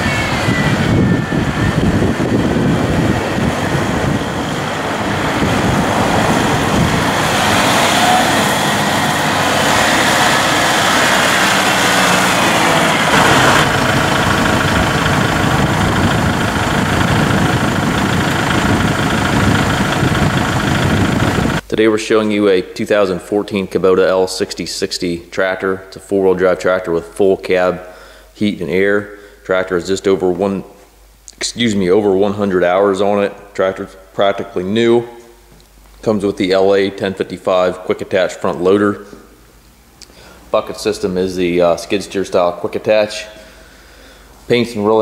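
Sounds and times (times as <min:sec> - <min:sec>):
tractor diesel engine running: 0:00.0 - 0:21.7.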